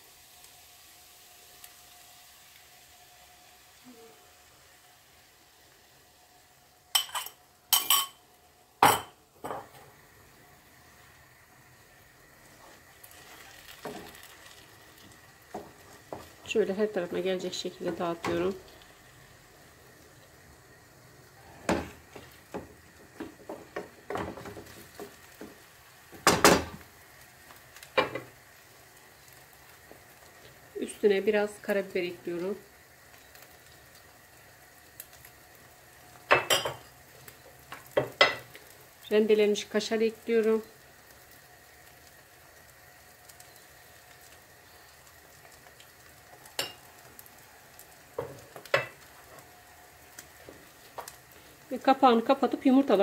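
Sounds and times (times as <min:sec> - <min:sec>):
glass bowl and cutlery clinking: 0:07.0 - 0:08.2.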